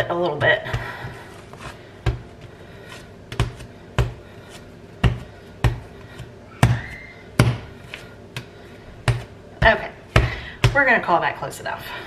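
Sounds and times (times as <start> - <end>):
dough thumped on stone countertop: 6.6 - 7.7, 8.4 - 10.8.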